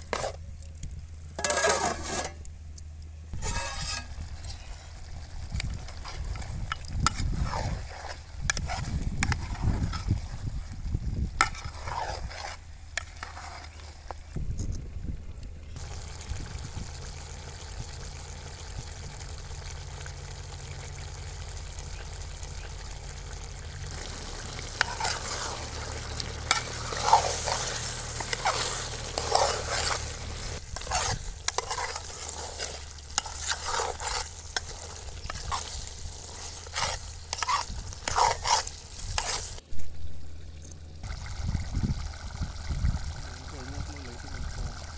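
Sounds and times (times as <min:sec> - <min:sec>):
metal ladle scraping a pot: 0:00.0 - 0:00.4, 0:01.4 - 0:02.5, 0:03.4 - 0:10.4, 0:11.4 - 0:14.3, 0:23.4 - 0:39.6
food sizzling: 0:03.3 - 0:14.0, 0:15.8 - 0:44.9.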